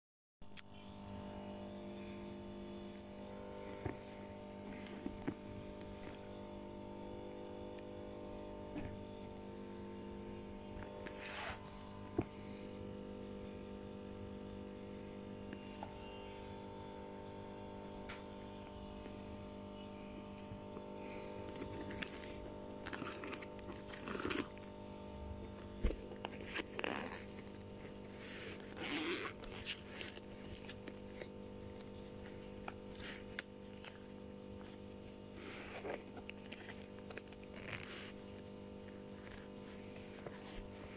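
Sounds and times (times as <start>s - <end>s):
steady electrical hum: 0.4s - 40.9s
plastic bag rustling: 21.0s - 40.9s
zippers being pulled: 21.6s - 24.8s, 25.5s - 34.0s, 35.4s - 40.9s.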